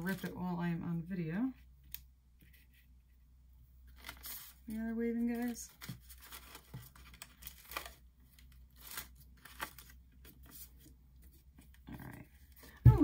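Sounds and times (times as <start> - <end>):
cardstock rustling and crinkling: 0.0 - 0.6, 3.9 - 13.0.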